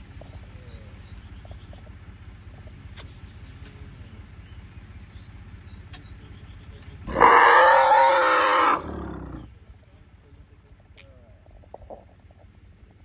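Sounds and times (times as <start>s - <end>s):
elephant calf calling: 7.1s - 9.5s.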